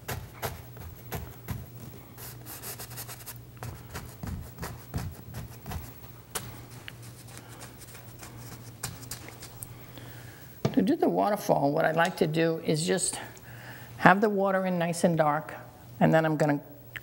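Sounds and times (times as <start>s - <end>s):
paintbrush dabbing on canvas: 0.0s - 9.6s
steady low hum: 0.0s - 17.0s.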